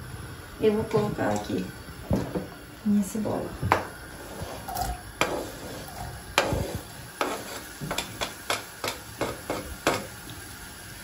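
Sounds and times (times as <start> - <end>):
wooden spatula scraping cutting board: 4.1 - 8.6
spatula knocks: 7.2 - 10.1.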